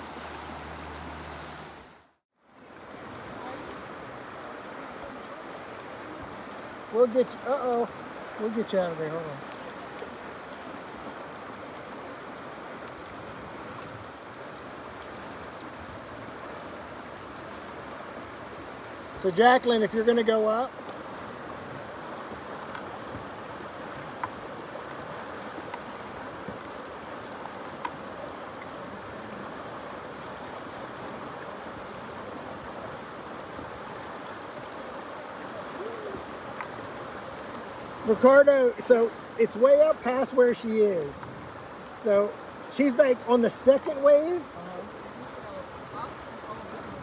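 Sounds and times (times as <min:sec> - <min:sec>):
river rushing over rocks: 0:00.0 - 0:47.0
faint splashes: 0:02.6 - 0:47.0.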